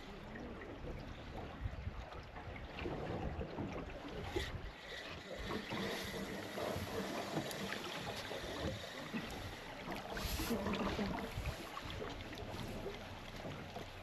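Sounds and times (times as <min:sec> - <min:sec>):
water moving around boat: 0:00.0 - 0:14.0.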